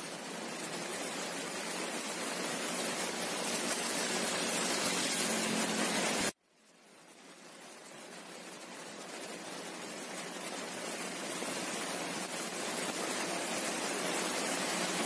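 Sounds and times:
heavy rain on a road: 0:00.0 - 0:15.0.

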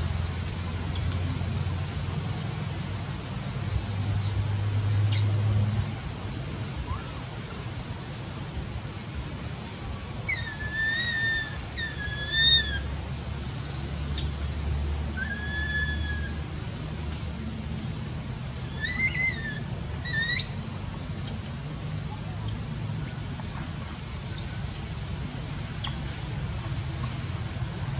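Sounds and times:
baby monkey coo calls: 0:10.3 - 0:14.2, 0:15.2 - 0:16.4, 0:18.6 - 0:26.0.

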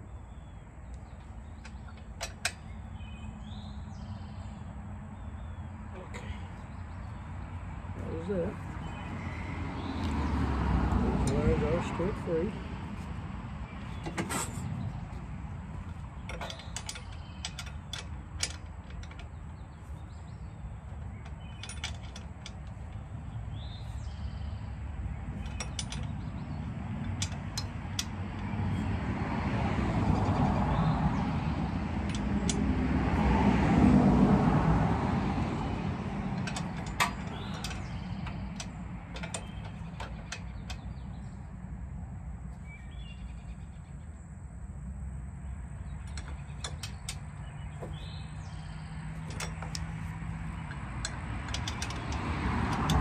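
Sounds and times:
ratchet clicking: 0:50.6 - 0:53.0.

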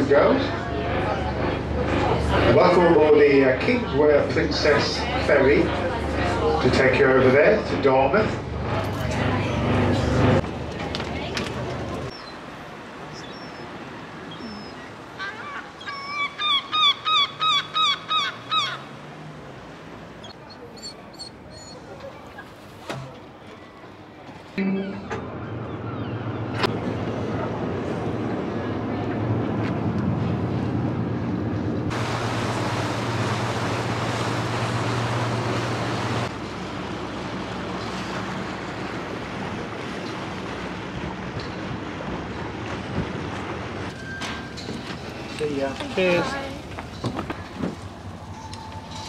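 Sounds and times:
low engine hum: 0:00.0 - 0:49.0
gull yelping: 0:14.3 - 0:18.8
water rushing past hull: 0:30.1 - 0:49.0.

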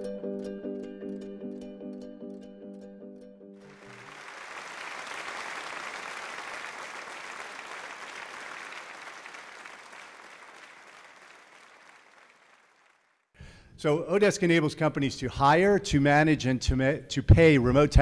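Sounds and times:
audience applauding: 0:03.6 - 0:13.1.

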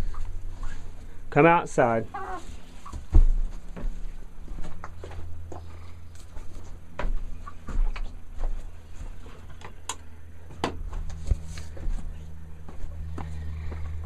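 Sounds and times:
steady low hum: 0:00.0 - 0:14.0
footsteps: 0:02.2 - 0:09.6, 0:10.4 - 0:14.0.

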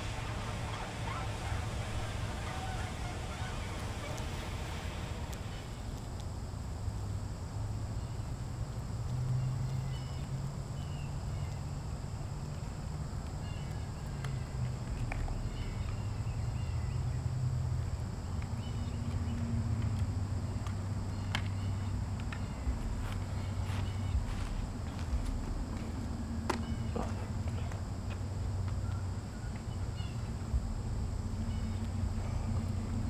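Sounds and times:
wind rumbling on microphone: 0:00.0 - 0:07.2, 0:21.7 - 0:33.0
faint bird chirps: 0:15.2 - 0:17.2, 0:31.4 - 0:32.8.

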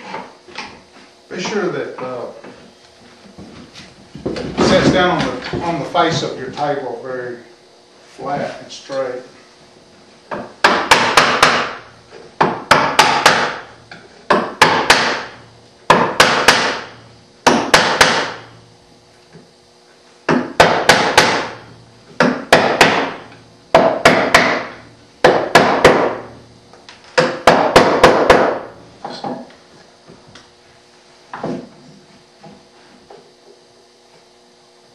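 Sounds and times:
chisel struck into wood: 0:10.3 - 0:13.7, 0:14.3 - 0:18.5, 0:20.3 - 0:26.3, 0:27.2 - 0:29.5.

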